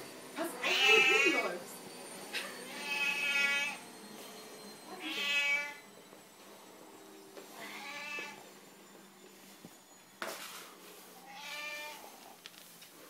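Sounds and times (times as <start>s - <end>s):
cat meowing: 0.6s - 1.3s, 2.7s - 3.8s, 5.0s - 5.8s, 7.6s - 8.4s, 11.2s - 12.2s.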